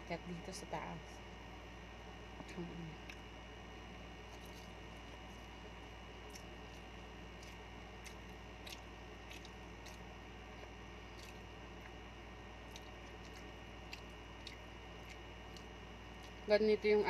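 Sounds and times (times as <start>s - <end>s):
steady hum: 0.0s - 17.0s
person chewing: 4.2s - 5.5s, 6.1s - 16.5s
wet squishes of fingers in food: 4.2s - 16.9s
small clicks and smacks: 6.2s - 12.0s, 12.6s - 16.5s.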